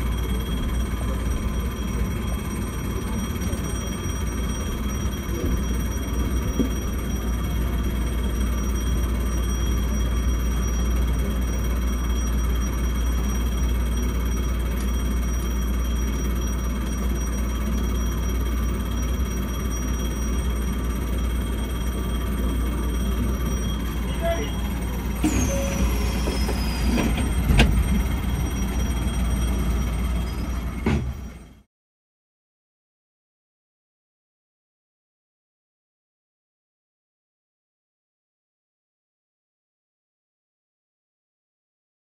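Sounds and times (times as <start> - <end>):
high-pitched tones: 0.0 - 31.4
train low rumble: 0.0 - 31.6.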